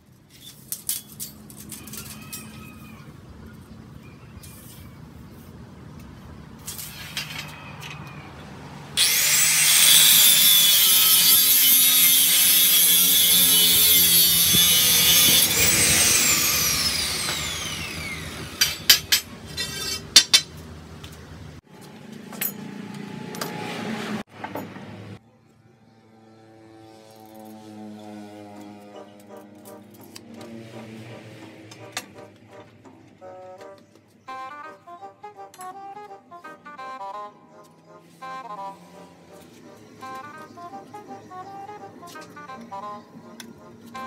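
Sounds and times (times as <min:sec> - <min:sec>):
angle grinder cutting steel pipe: 0:09.0 - 0:20.1.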